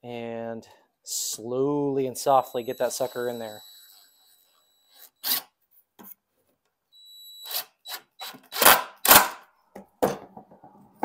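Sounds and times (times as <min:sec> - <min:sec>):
screw grinding into wood: 0:02.3 - 0:05.5.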